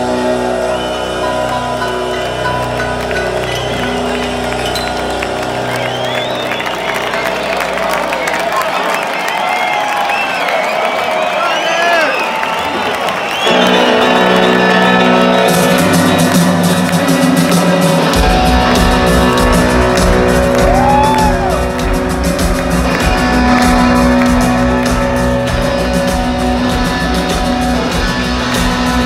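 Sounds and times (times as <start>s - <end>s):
rock band playing loudly: 0.0s - 8.6s, 13.4s - 29.0s
heavy drums and bass: 15.4s - 29.0s.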